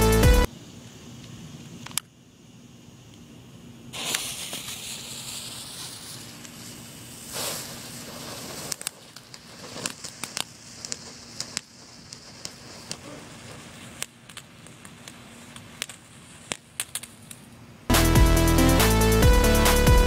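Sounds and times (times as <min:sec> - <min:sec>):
firework crackles and pops: 0:03.0 - 0:18.2
firework hissing: 0:03.8 - 0:17.3.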